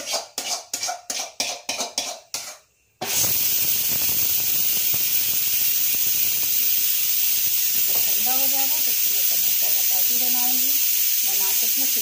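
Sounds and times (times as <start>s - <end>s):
metal spatula scraping a pan: 0.0s - 3.2s
heavy rain hissing: 3.2s - 12.0s.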